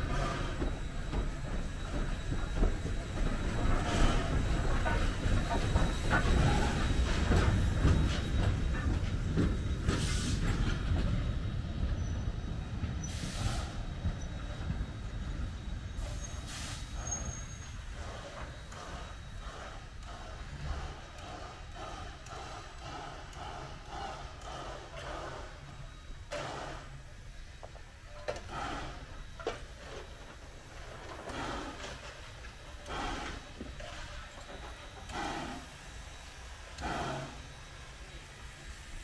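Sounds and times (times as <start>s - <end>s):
clanking wheels on rails: 0.0s - 39.0s
steam hissing: 0.0s - 39.0s
steam locomotive rumbling past: 0.0s - 39.0s
wheel squeals: 14.0s - 20.0s.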